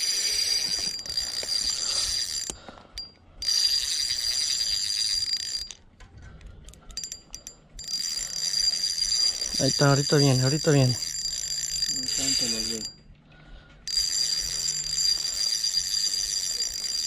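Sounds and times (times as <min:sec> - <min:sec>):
fishing reel whirring: 0:00.0 - 0:05.8, 0:07.0 - 0:13.0, 0:13.9 - 0:17.0.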